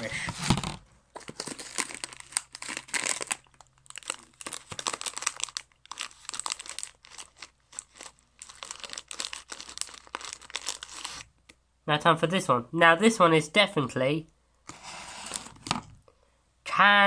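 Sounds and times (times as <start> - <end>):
plastic bag crinkling: 0.5 - 11.2.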